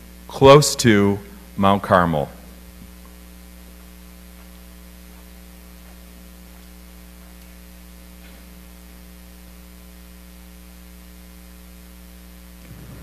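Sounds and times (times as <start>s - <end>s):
electrical mains hum: 0.0s - 13.0s
faint hiss: 12.5s - 13.0s.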